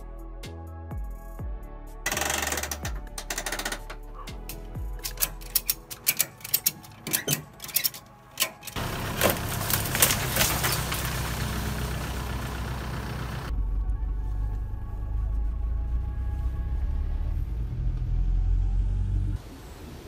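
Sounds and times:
ratchet strap clicking: 2.1 - 8.8
vehicle towing rumble: 6.8 - 19.4.

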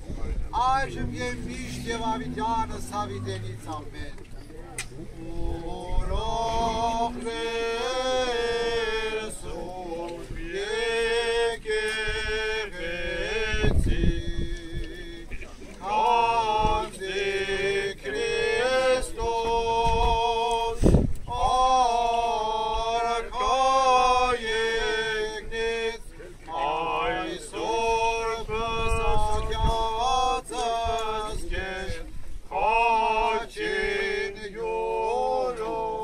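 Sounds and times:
man chanting a hymn: 0.0 - 4.2, 5.0 - 36.0
wind thumping on microphone: 13.4 - 15.3, 19.1 - 21.5, 27.9 - 32.5.

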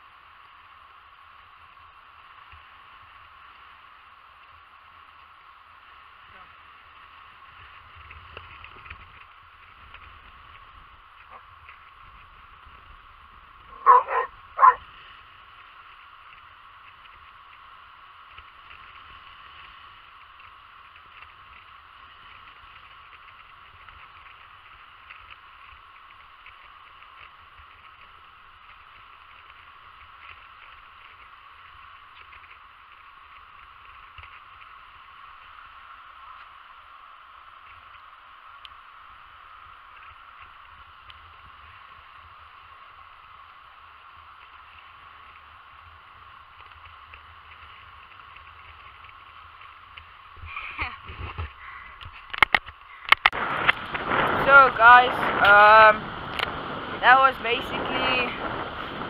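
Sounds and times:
steady background hiss: 0.0 - 59.0
dog barking: 13.7 - 14.8.

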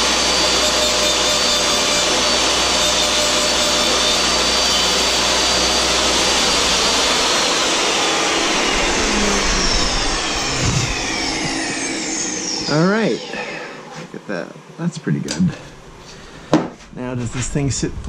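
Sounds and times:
saw blade cutting plastic pipe: 0.0 - 7.8
table saw whining: 0.0 - 14.3.

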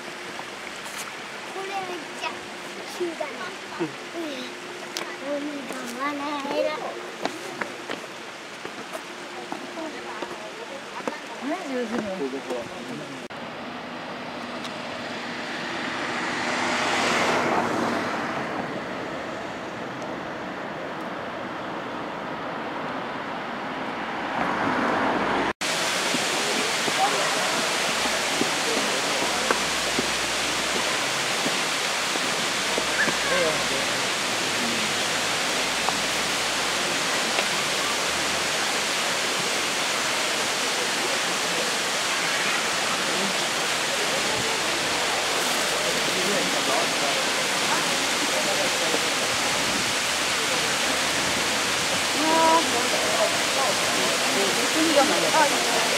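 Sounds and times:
waterfall rushing into rock gorge: 0.0 - 13.3, 25.5 - 55.9
steady traffic noise: 0.0 - 55.9
vehicle passing by: 14.8 - 20.5, 22.3 - 25.5.

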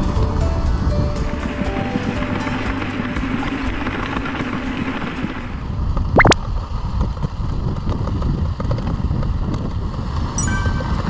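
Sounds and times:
wind buffeting microphone: 0.0 - 11.0
quick rising chirp: 10.4 - 11.0.

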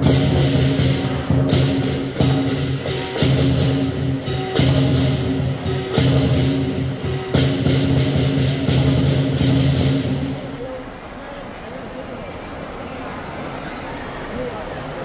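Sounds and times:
clashing cymbals: 0.0 - 10.6
large drum beating: 0.0 - 10.6
ringing gong: 0.8 - 8.8.

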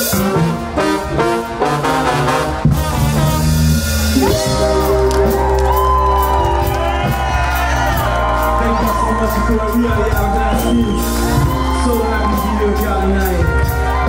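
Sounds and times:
live band playing: 0.0 - 14.0
crowd cheering and clapping: 4.1 - 14.0.

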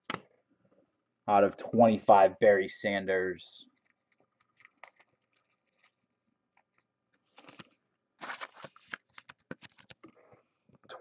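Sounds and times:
plastic sleeve rustling: 3.8 - 10.0.

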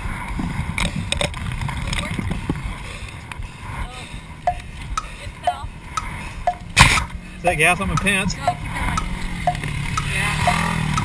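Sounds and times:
wind rumbling on microphone: 0.0 - 10.5.

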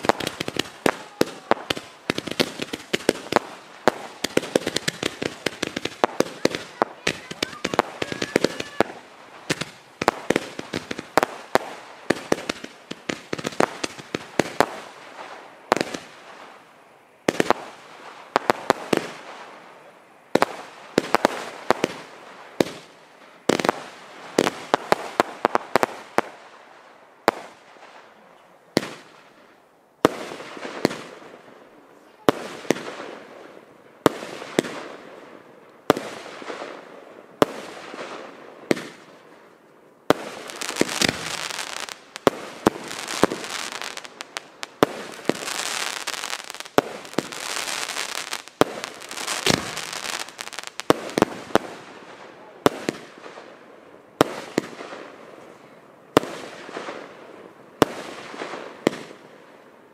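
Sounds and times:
firework shells bursting: 0.0 - 14.8, 40.1 - 51.8
hiss with fast small pops: 0.0 - 16.5, 38.7 - 52.1.

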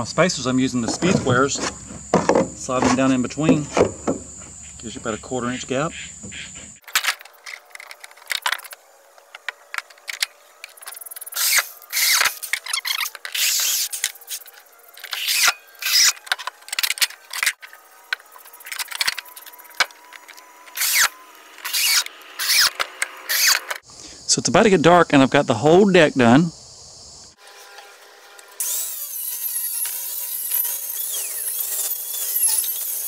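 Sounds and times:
clicks and knocks of boards: 0.9 - 4.6
power drill driving screws into wood: 6.8 - 23.8, 27.4 - 33.0.

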